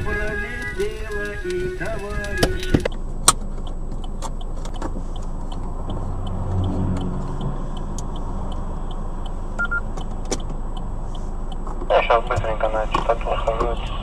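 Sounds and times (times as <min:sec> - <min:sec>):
car engine and road noise: 0:00.0 - 0:14.0
short electronic beep: 0:09.6 - 0:09.9.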